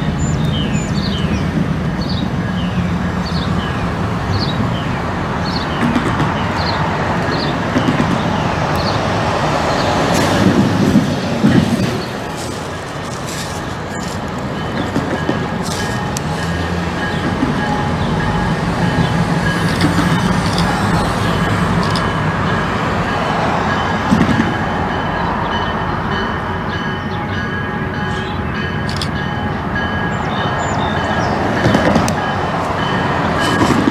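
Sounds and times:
diesel locomotive engine running: 0.0 - 33.9
wheels and couplings clunking: 5.5 - 22.6, 31.0 - 33.9.

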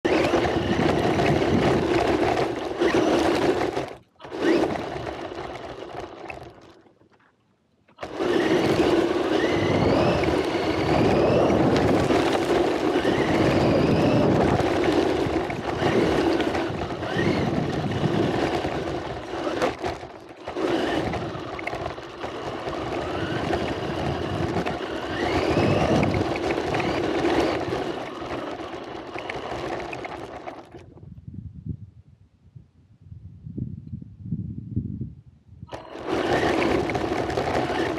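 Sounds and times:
motor whining: 0.0 - 6.6, 8.0 - 30.8, 35.7 - 37.9
toy car driving over gravel: 0.1 - 7.0, 7.9 - 30.9, 35.7 - 37.9.

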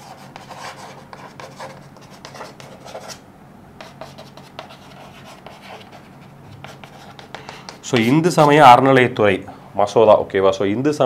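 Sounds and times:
chalk scratching on a blackboard: 0.0 - 3.2, 3.8 - 8.6.

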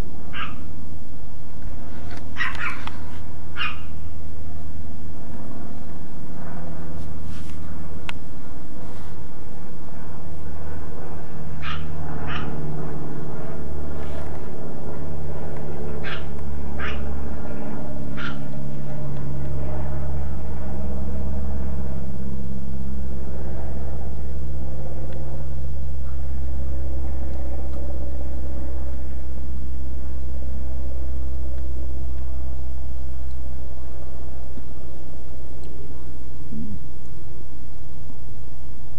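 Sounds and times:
steady low rumble: 0.0 - 38.9
dogs barking: 0.3 - 0.6, 2.4 - 2.9, 3.6 - 3.9, 11.6 - 12.6, 16.0 - 17.0, 18.2 - 18.4.

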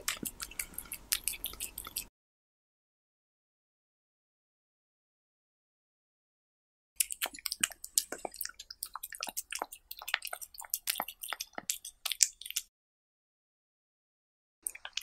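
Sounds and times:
cat crunching and chewing: 0.0 - 2.1, 7.0 - 12.7, 14.7 - 15.0.

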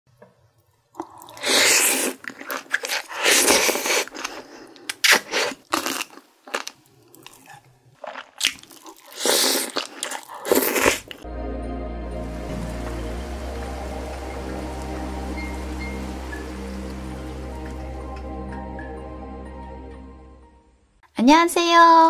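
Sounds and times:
loud slurping of noodles: 1.0 - 5.6, 9.0 - 11.2
crunchy bites and chewing: 1.0 - 11.2.

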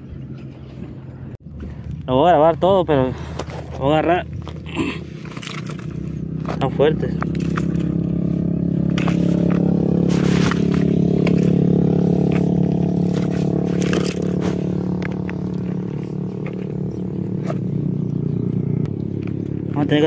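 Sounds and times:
engine running steadily: 0.0 - 20.0
gravel and fishing line scrapes: 2.9 - 17.7.

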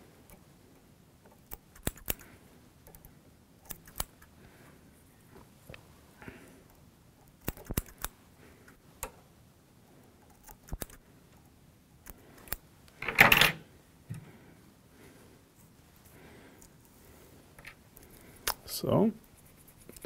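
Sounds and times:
scissors snipping hair: 1.5 - 2.3, 3.6 - 4.3, 7.4 - 8.2, 10.3 - 11.0.

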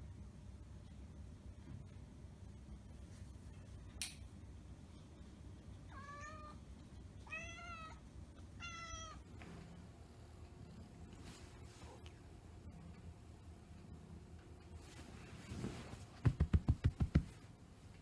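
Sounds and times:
cat meowing: 7.2 - 8.0, 8.6 - 9.2.

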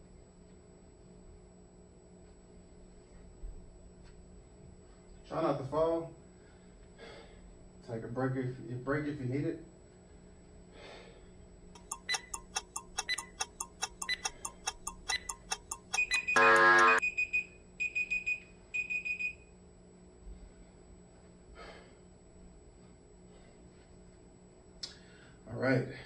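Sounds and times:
short bursts of high beeps: 11.8 - 19.3
loud timer buzzer: 11.8 - 19.4
timer ticking beeps: 11.8 - 19.4.

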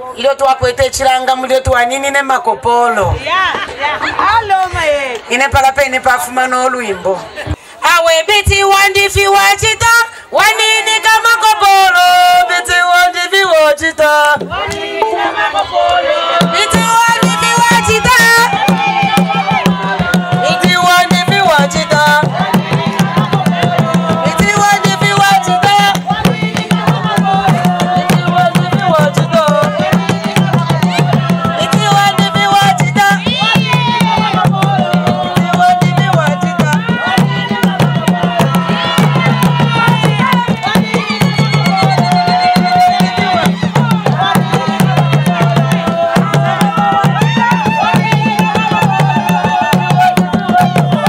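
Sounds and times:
woman singing into microphone: 7.8 - 14.7, 16.4 - 38.1
wooden hand drums: 14.2 - 15.2, 15.8 - 51.0.

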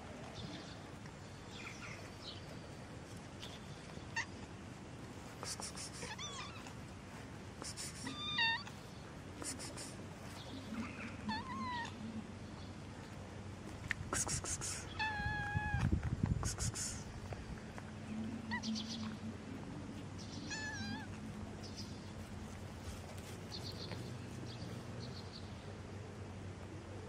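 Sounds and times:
cat meowing: 11.2 - 12.0, 14.9 - 15.9, 20.4 - 21.2.

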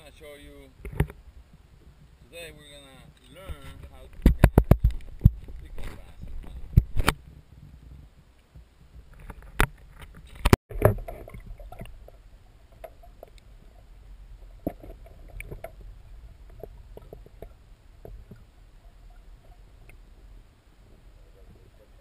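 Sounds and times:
muffled underwater noise: 10.2 - 22.0.

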